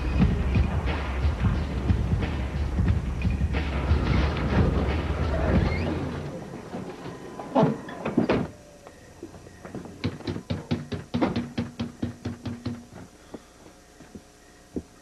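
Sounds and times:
loud thuds on door: 0:10.0 - 0:12.8
fist knocking on door: 0:10.0 - 0:12.9.

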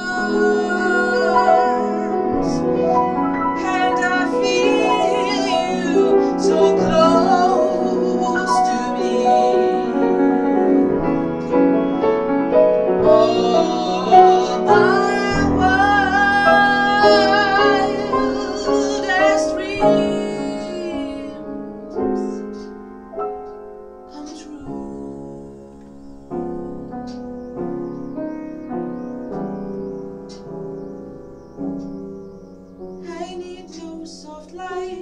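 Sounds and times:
woman singing with vibrato: 0:00.0 - 0:11.6, 0:13.0 - 0:22.6, 0:24.1 - 0:26.9, 0:33.0 - 0:35.0
piano chords: 0:00.0 - 0:35.0.

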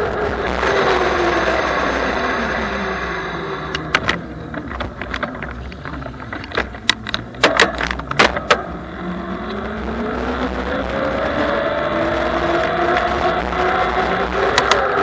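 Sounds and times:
riding noise: 0:00.0 - 0:15.0
bike clicks and rattles: 0:03.8 - 0:08.6, 0:14.6 - 0:15.0.

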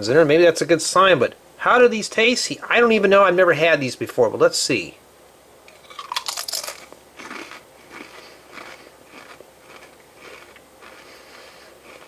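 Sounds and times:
chewing crunches: 0:05.7 - 0:12.0
potato crisp crunching: 0:05.7 - 0:12.0.

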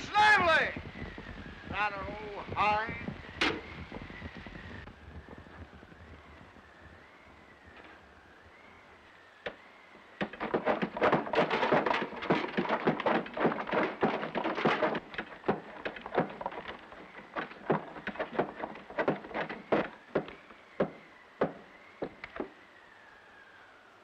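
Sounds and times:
hand water pump clanking: 0:10.2 - 0:20.3.

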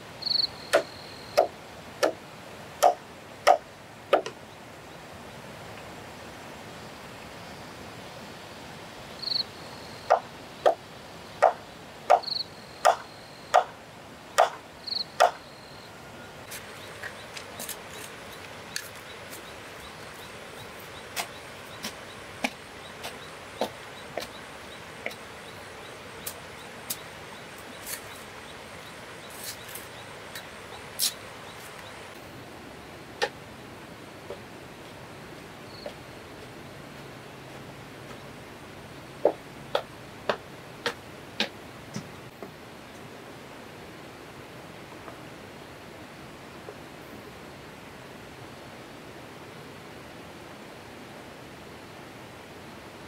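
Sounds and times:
faint insect whine: 0:00.0 - 0:01.5, 0:04.4 - 0:14.1, 0:14.7 - 0:37.5
sharp knocks on bamboo: 0:00.7 - 0:02.2, 0:02.8 - 0:04.4, 0:14.4 - 0:14.6.

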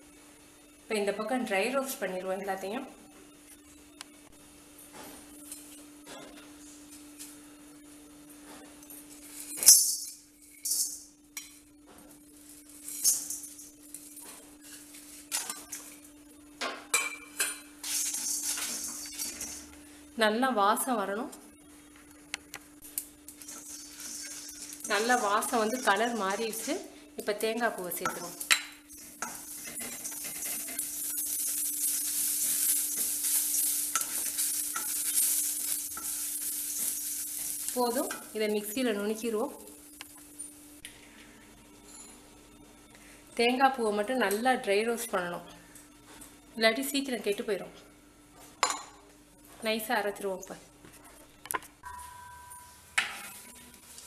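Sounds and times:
faint steady hum: 0:00.0 - 0:44.7
spatula stirring dry spices: 0:17.8 - 0:19.6, 0:23.4 - 0:26.9, 0:28.0 - 0:38.2
dry lentils rattling in metal pan: 0:23.4 - 0:26.7
wooden spatula stirring dry spices: 0:23.4 - 0:26.7.

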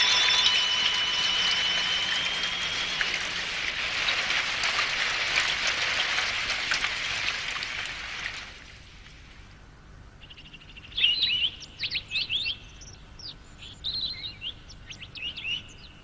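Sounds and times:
thin high tone: 0:00.0 - 0:05.8
heavy rain falling: 0:00.7 - 0:09.0.

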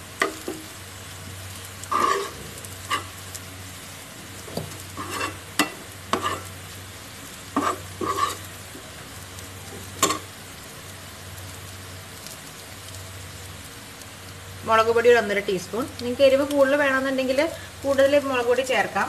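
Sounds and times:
frying sizzle: 0:00.0 - 0:19.0
spoon scraping a frying pan: 0:01.8 - 0:03.2, 0:04.9 - 0:06.6, 0:07.5 - 0:08.5, 0:09.7 - 0:10.3.

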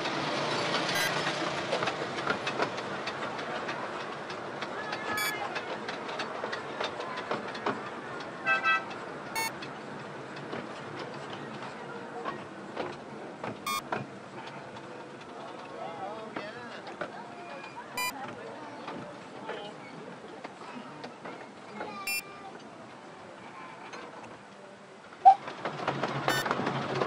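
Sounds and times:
train wheels clattering over rail joints: 0:00.0 - 0:24.5, 0:25.4 - 0:27.0
short high wheel squeals: 0:00.5 - 0:01.4, 0:05.0 - 0:05.5, 0:26.3 - 0:26.5.

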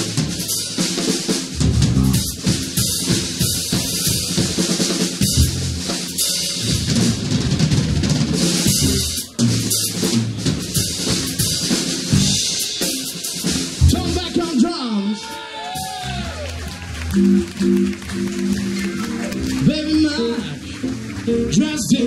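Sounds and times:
drum kit groove: 0:00.0 - 0:14.8, 0:15.7 - 0:22.0
electric bass low notes: 0:01.5 - 0:02.6, 0:05.2 - 0:05.9, 0:06.6 - 0:10.4, 0:12.1 - 0:12.4, 0:16.0 - 0:20.2.

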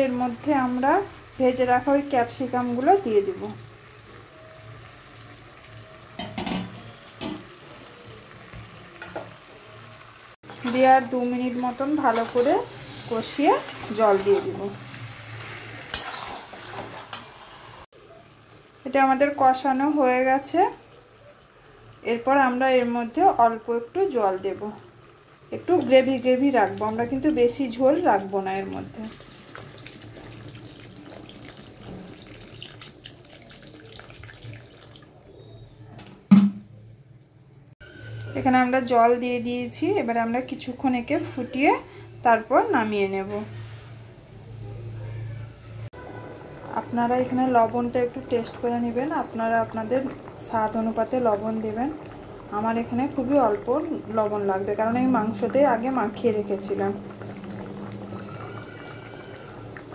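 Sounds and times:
food sizzling in a wok: 0:00.0 - 0:35.6, 0:46.0 - 0:59.9
metal spatula scraping a wok: 0:10.4 - 0:11.2, 0:12.0 - 0:17.9
water pouring into curry: 0:24.9 - 0:35.4, 0:46.0 - 0:59.9.

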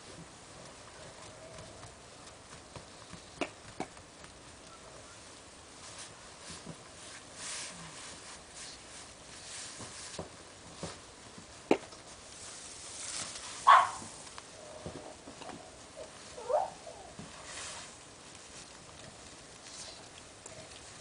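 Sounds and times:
dog barking: 0:13.6 - 0:14.1, 0:16.4 - 0:16.9.

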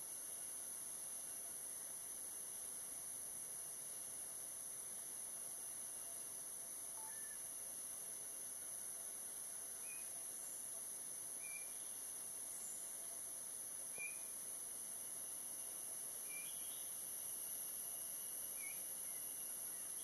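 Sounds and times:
insects droning: 0:00.0 - 0:20.0
faint bird chirps: 0:07.0 - 0:07.5, 0:09.8 - 0:10.7, 0:11.4 - 0:13.0, 0:13.9 - 0:14.4, 0:16.2 - 0:17.0.

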